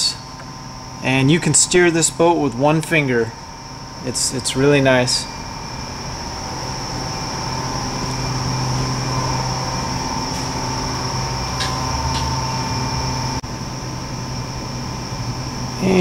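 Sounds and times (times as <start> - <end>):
faint high whine: 0.0 - 16.0
low room hum drone: 0.0 - 16.0.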